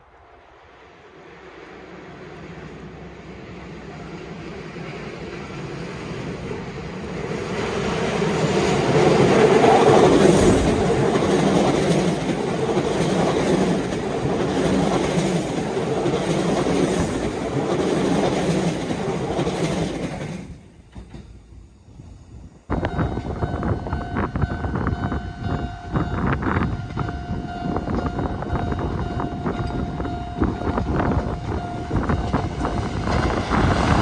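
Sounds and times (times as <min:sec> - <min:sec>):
train wheels clacking over rail joints: 0:08.6 - 0:21.5.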